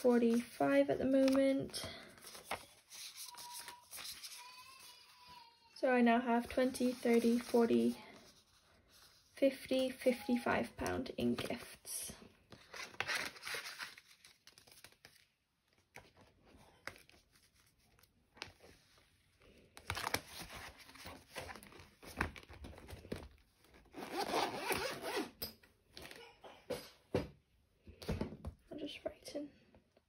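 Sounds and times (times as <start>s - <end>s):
paper and banknotes rustling: 0.0s - 5.3s, 6.4s - 10.2s, 12.4s - 23.8s
zipper running: 24.0s - 25.4s.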